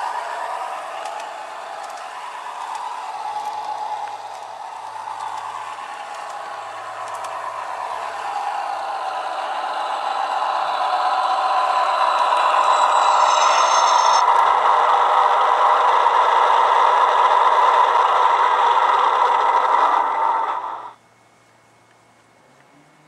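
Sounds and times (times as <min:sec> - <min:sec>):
diesel engine sound from loudspeaker: 0:00.0 - 0:13.6
brief high squeal: 0:09.8 - 0:14.3.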